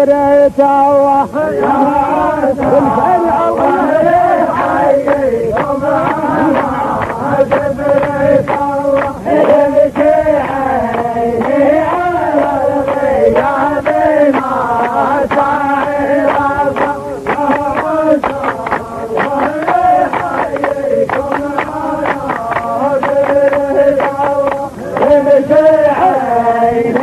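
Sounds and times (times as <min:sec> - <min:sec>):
man chanting: 0:00.0 - 0:10.0, 0:12.8 - 0:27.0.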